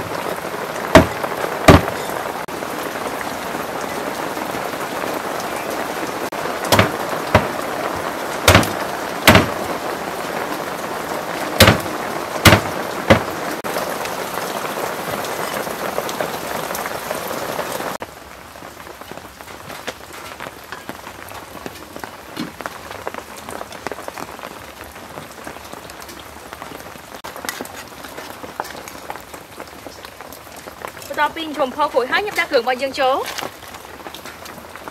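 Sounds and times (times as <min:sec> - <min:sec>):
heavy rain: 0:00.0 - 0:34.9
sharp knocks: 0:01.0 - 0:02.1, 0:06.7 - 0:07.6, 0:08.5 - 0:09.6, 0:11.6 - 0:13.3.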